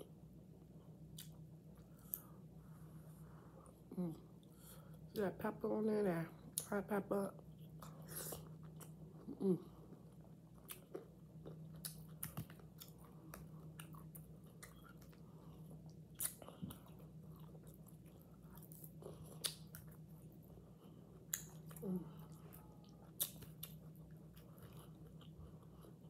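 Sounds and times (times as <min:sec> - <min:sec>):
person chewing food: 0:01.0 - 0:02.5, 0:07.4 - 0:26.0
person humming: 0:09.3 - 0:09.8.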